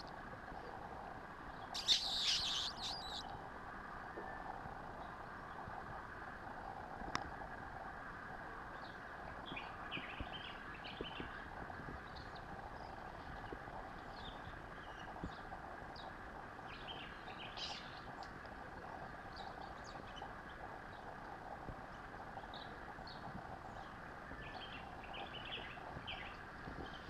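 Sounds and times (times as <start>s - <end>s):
steady background hiss: 0.0s - 27.0s
mongooses chirping: 1.7s - 3.3s
faint ticks: 7.0s - 7.4s, 17.7s - 23.6s.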